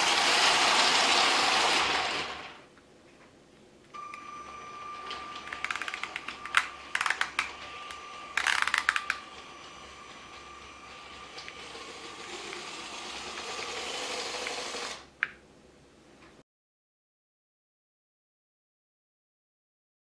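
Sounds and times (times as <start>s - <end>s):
toy train motor whine: 4.0s - 15.1s.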